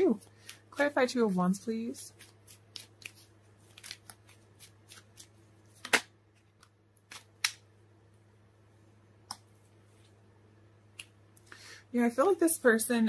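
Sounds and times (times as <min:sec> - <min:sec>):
cards being shuffled: 0:02.1 - 0:07.6
sharp card snap: 0:05.8 - 0:06.1, 0:07.1 - 0:07.6.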